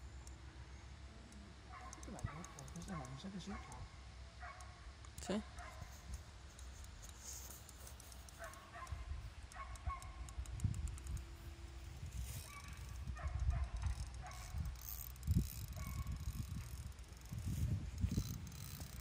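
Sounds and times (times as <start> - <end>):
fishing reel ratcheting: 2.0 - 3.2, 6.5 - 8.8, 9.4 - 19.0.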